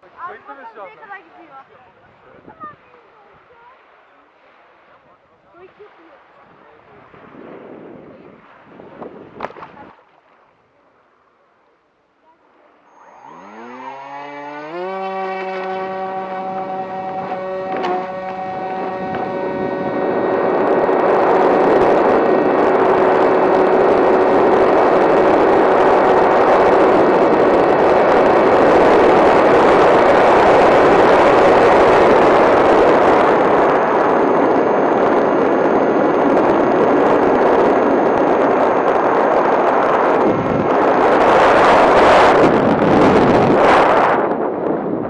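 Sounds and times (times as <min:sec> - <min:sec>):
rush of water and wind: 0:00.0 - 0:45.0
model plane motor whine: 0:12.8 - 0:44.4.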